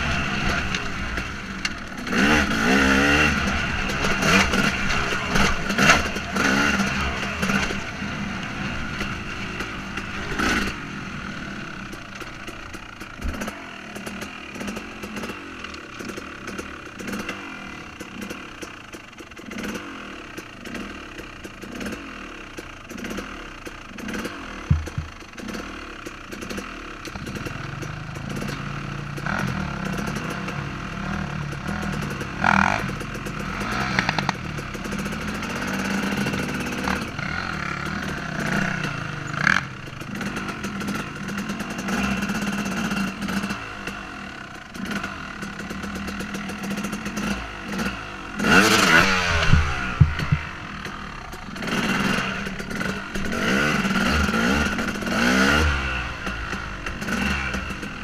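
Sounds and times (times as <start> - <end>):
dirt bike engine revving: 0.0 - 58.0
bike knocks and rattles: 11.9 - 19.8, 22.6 - 30.6, 31.4 - 44.0, 44.7 - 58.0.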